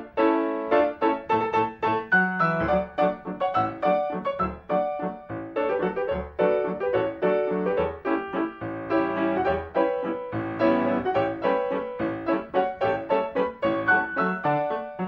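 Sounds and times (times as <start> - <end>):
lively solo piano: 0.0 - 15.0.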